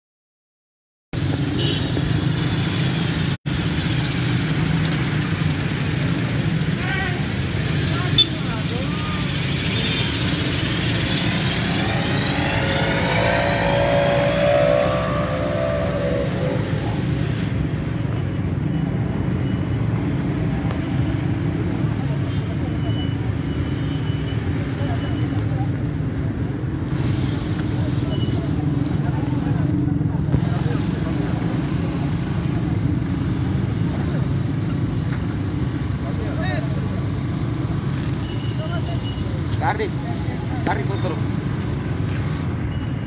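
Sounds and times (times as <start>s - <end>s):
street traffic: 1.1s - 43.0s
motorcycle and car engines: 1.2s - 43.0s
pitched tone: 10.7s - 17.6s.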